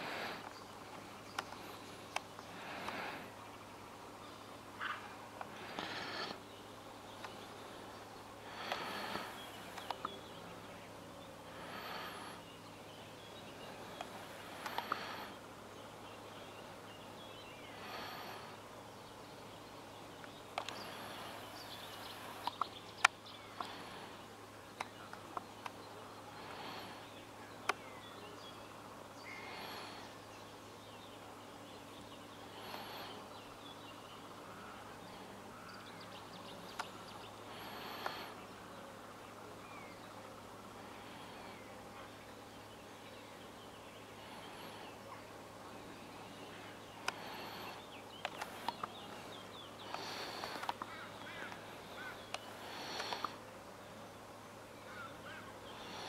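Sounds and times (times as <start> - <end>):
birds chirping and trilling: 0.0 - 56.0
sharp clicks: 48.2 - 49.0, 49.9 - 50.9, 52.3 - 53.4.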